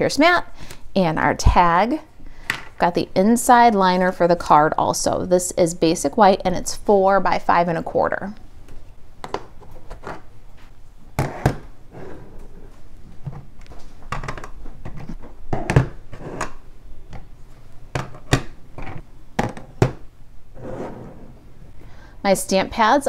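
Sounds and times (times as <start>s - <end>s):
objects sliding on table: 11.2s - 12.8s, 20.6s - 21.8s.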